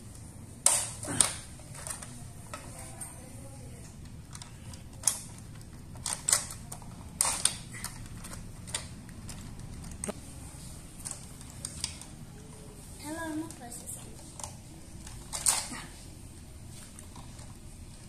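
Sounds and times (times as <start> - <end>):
plastic toy parts clicking: 0.6 - 3.0, 3.8 - 10.2, 11.0 - 12.2, 13.5 - 15.7.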